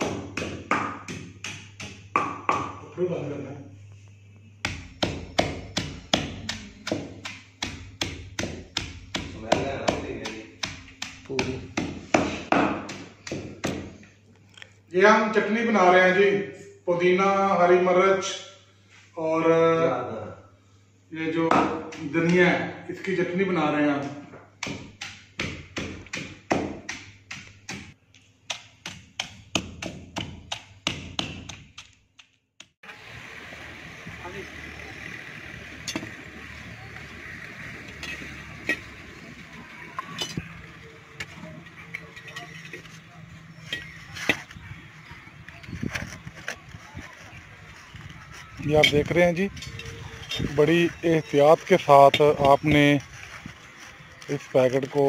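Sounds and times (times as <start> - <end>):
pestle pounding in mortar: 0.0 - 2.8, 4.6 - 14.0, 24.6 - 32.7.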